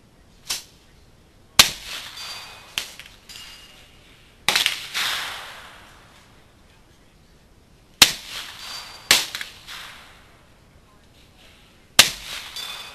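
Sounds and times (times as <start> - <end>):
bullet clanging on steel target: 1.8 - 3.9, 8.3 - 9.9, 12.0 - 12.9
rifle shots: 4.5 - 6.0, 8.0 - 10.3, 12.0 - 12.9.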